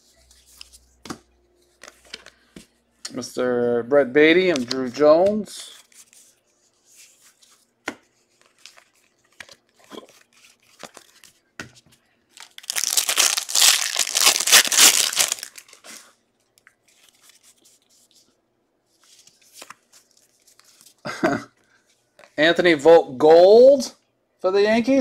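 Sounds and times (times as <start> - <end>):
foil wrapper tearing and crinkling: 12.4 - 15.8.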